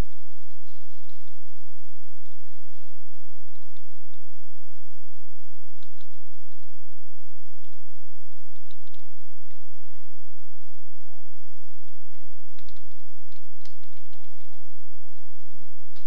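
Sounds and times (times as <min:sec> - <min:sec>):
steady background noise: 0:00.0 - 0:16.0
keyboard keystrokes: 0:05.8 - 0:06.7, 0:08.5 - 0:09.6, 0:12.1 - 0:15.2.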